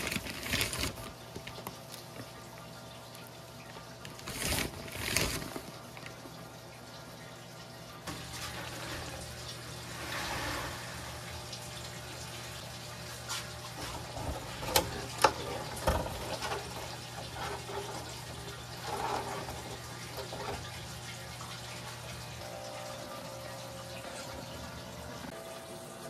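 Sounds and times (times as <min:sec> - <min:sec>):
trickle of running water: 0:00.0 - 0:26.0.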